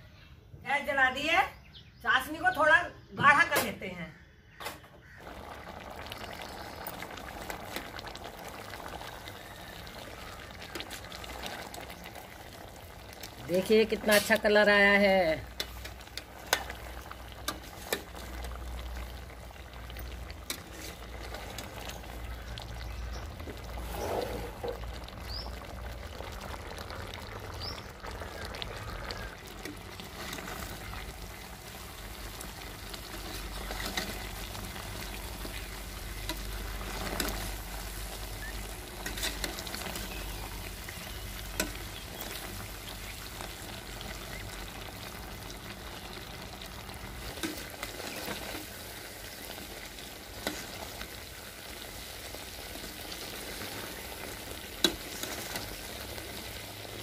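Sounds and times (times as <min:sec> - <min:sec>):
syrup boiling and bubbling: 0:05.0 - 0:57.0.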